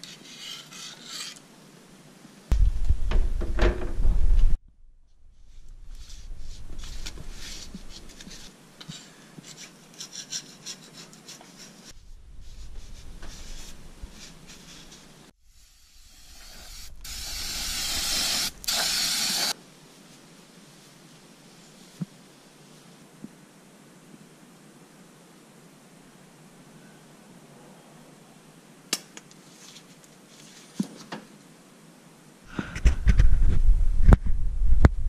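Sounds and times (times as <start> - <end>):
aerosol spray hiss: 12.4 - 19.6.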